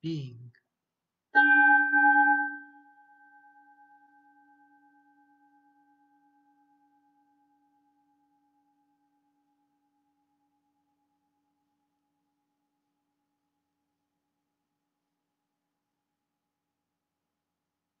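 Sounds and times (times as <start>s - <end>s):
meditation bell ringing: 1.4s - 5.1s.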